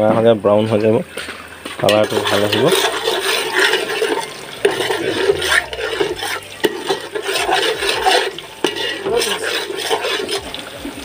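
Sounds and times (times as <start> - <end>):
onions sizzling in oil: 0.0 - 11.0
spoon knocking and scraping pot: 1.8 - 10.6.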